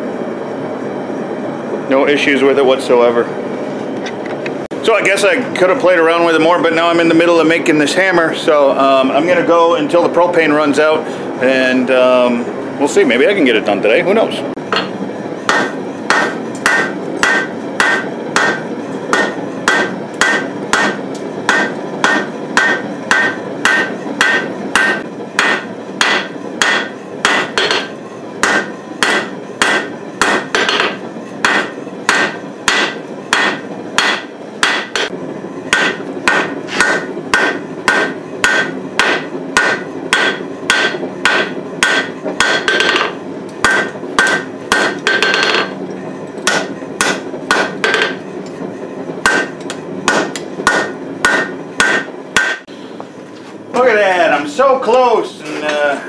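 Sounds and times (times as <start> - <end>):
anvil ringing: 14.7 - 35.1, 35.7 - 45.8, 46.5 - 48.2, 49.2 - 52.6
hammer blows on anvil: 14.7 - 45.8, 46.4 - 48.2, 49.2 - 52.7.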